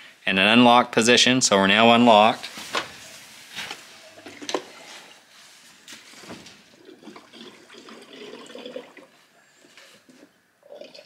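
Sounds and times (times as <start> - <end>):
fuel pouring and gurgling: 6.7 - 9.2.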